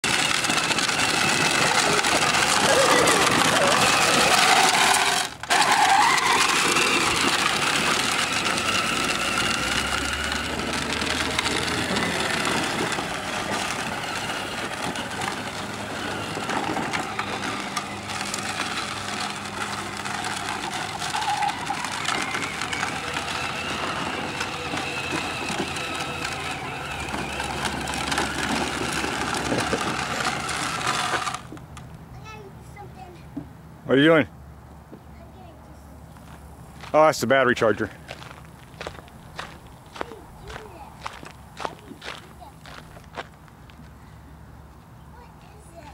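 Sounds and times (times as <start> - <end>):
electric motor whine: 0.0 - 31.5
plastic wheels grinding on dirt: 0.0 - 32.8, 36.2 - 44.0, 45.2 - 45.9
outdoor noise: 0.0 - 45.9.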